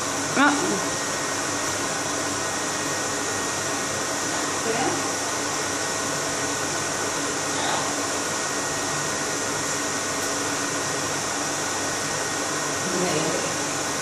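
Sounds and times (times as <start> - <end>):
electric fan humming: 0.0 - 14.0.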